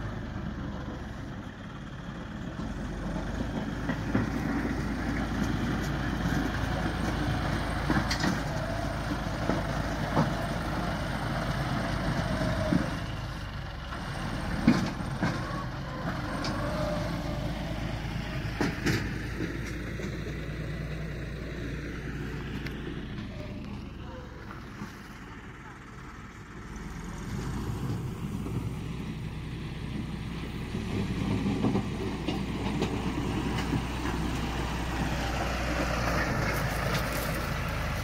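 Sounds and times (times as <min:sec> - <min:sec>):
tractor diesel engine under load: 0:00.0 - 0:38.0.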